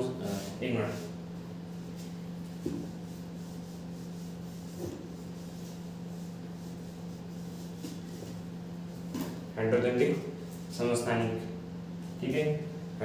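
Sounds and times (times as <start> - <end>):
eraser rubbing on whiteboard: 2.7 - 8.4.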